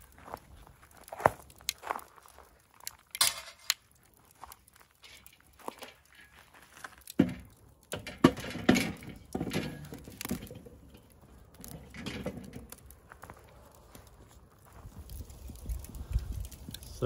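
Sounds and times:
metal grill grate knocking and scraping: 0:03.1 - 0:03.8, 0:05.0 - 0:12.9.

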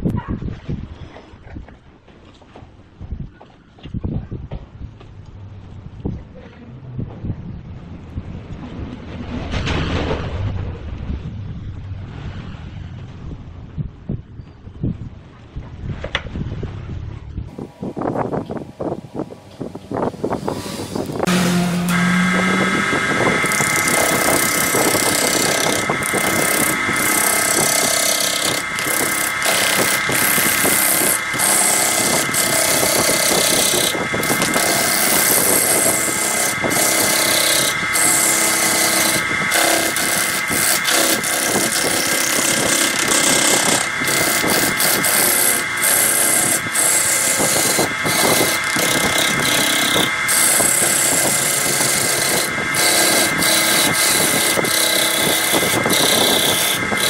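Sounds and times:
lathe motor whine: 0:17.5 - 0:57.0
gouge rasping wood: 0:20.4 - 0:57.0.

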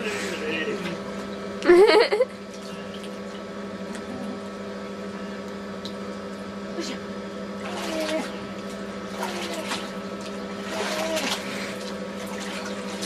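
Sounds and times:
low pump hum: 0:00.0 - 0:13.0
water splashing and sloshing: 0:02.3 - 0:04.1, 0:07.5 - 0:13.0.

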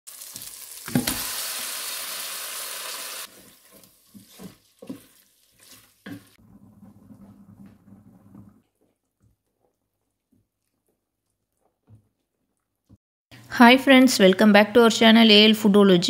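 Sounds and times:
chicken sizzling in hot oil: 0:00.1 - 0:06.4
wooden spoon scraping a pot: 0:03.2 - 0:11.0.

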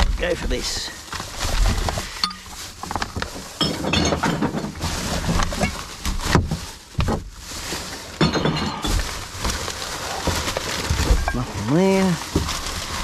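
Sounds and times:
plastic bag crinkling: 0:00.2 - 0:03.7, 0:04.3 - 0:13.0
containers clinking: 0:08.1 - 0:09.3, 0:10.2 - 0:13.0.

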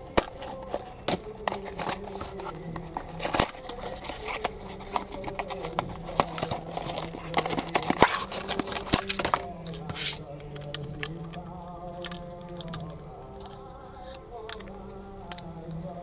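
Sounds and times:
scissors snipping cardboard: 0:00.1 - 0:10.2
cardboard packaging rustling: 0:00.1 - 0:11.1.

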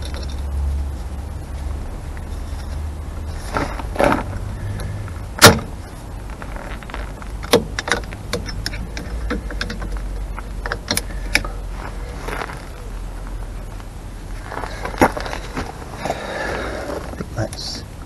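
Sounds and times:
metal clicks of springs: 0:07.4 - 0:11.6.

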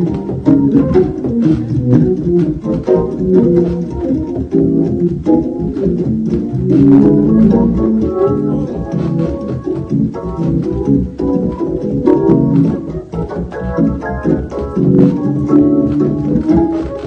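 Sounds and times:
organ chords: 0:00.0 - 0:17.0.

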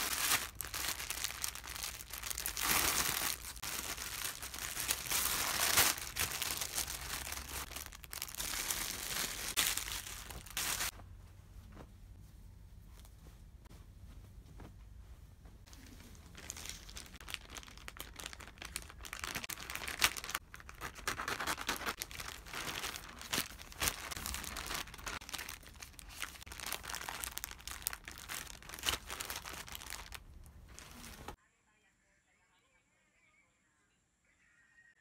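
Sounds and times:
plastic packaging crinkling: 0:00.0 - 0:10.9, 0:15.7 - 0:31.4.

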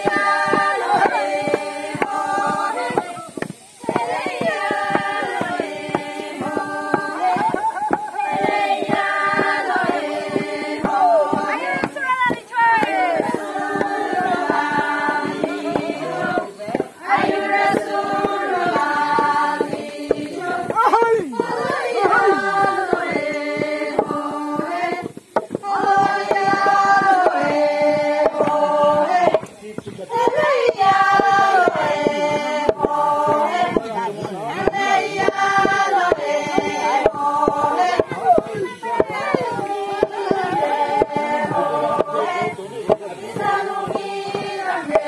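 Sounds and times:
pestles knocking in wooden mortars: 0:00.0 - 0:45.0
women singing a folk chant: 0:00.0 - 0:45.0.

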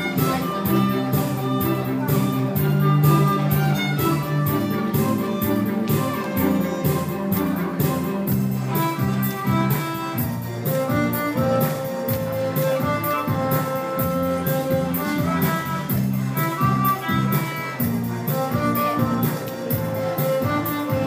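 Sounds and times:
repeating bass line: 0:00.0 - 0:11.5
solo violin melody: 0:00.0 - 0:21.0
steady drum beat: 0:00.0 - 0:21.0.

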